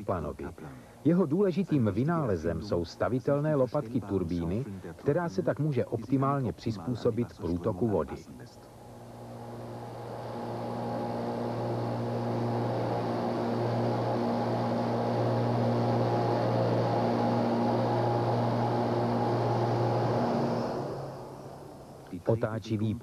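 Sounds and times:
steady tones: 8.5 - 22.6
turbine machine hum: 8.7 - 22.4.

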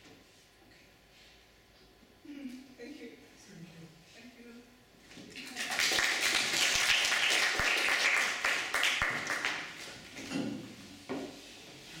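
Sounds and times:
audience applauding: 5.5 - 9.7.

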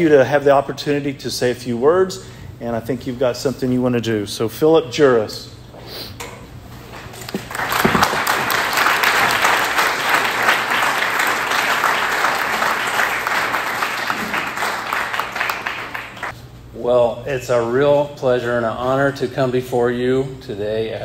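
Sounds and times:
audience applauding: 7.3 - 16.3.

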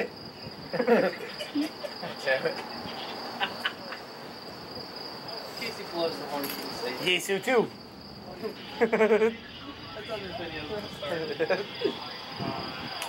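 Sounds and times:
crickets chirping: 0.0 - 13.0
faint voices: 5.1 - 13.0.

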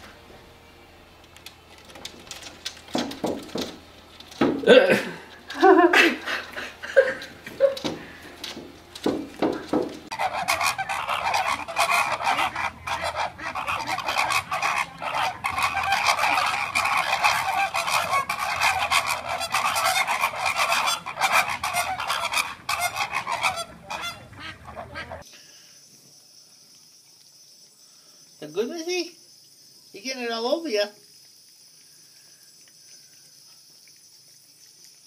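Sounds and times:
flamingos honking: 1.5 - 25.3.

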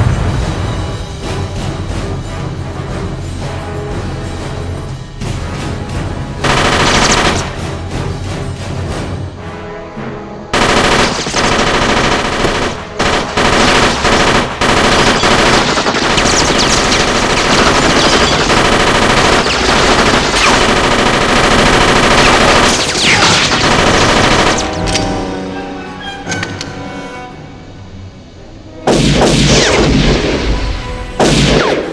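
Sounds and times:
film music score: 0.0 - 31.9
automatic gunfire: 6.4 - 7.6, 10.6 - 24.9.

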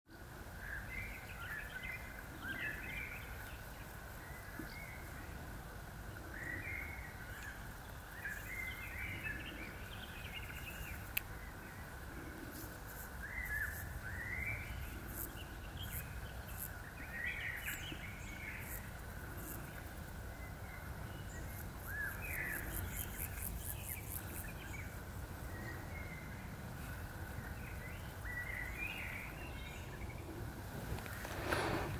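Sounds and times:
birds chirping: 0.5 - 31.9.

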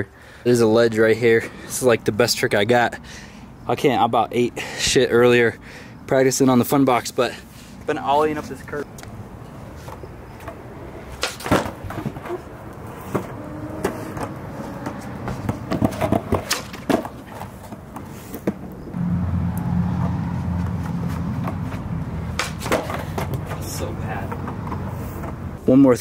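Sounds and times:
skateboard clacking on concrete: 9.8 - 18.8, 21.4 - 25.4.

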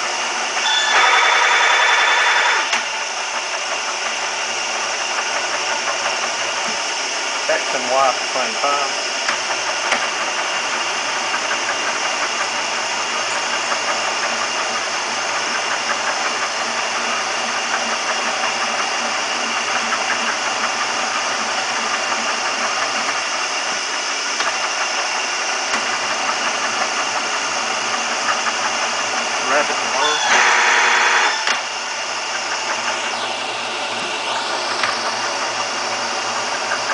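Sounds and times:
milling machine whirring: 0.0 - 36.9.

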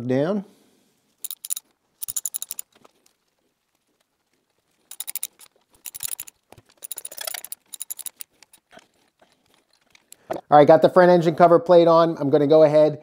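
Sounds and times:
ratchet wrench clicking: 1.2 - 2.6, 4.9 - 8.6.

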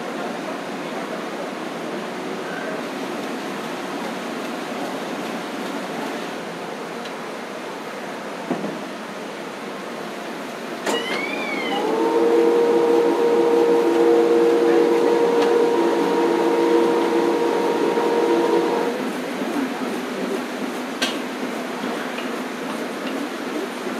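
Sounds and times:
pitched multi-tone hum: 11.5 - 19.0.

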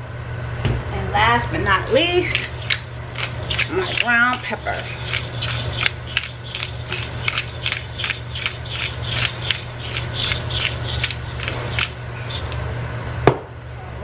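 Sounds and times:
pepper grinder crunching: 1.8 - 12.7.

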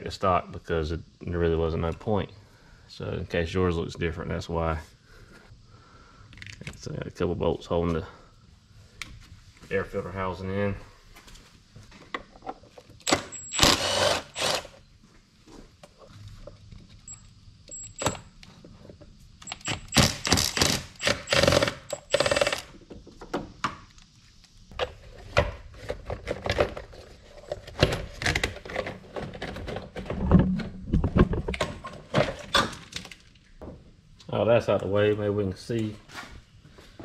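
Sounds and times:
cordless power tool running: 13.1 - 14.8, 19.6 - 22.7
plastic knocks and rattles: 27.8 - 33.1.

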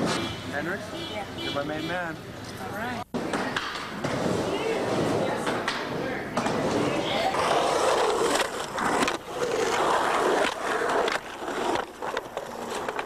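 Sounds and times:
skateboard clacks: 3.2 - 13.0
skateboard wheels rolling: 3.2 - 13.0.

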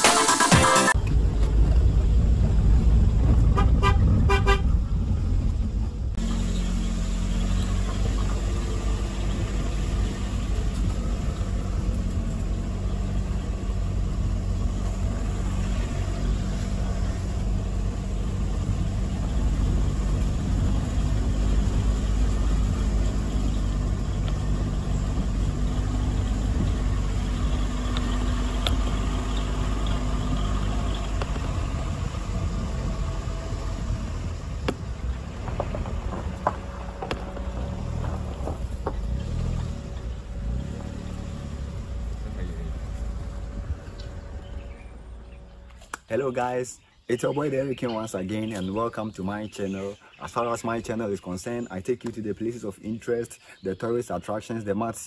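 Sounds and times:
car engine hum: 0.7 - 46.2
tyre rumble: 33.8 - 44.9.

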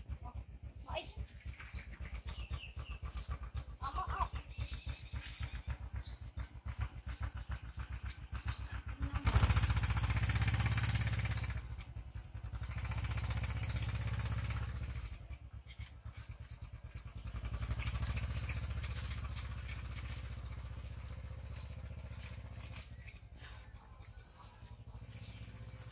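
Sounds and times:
motorbike engine idling and revving: 0.0 - 25.9.

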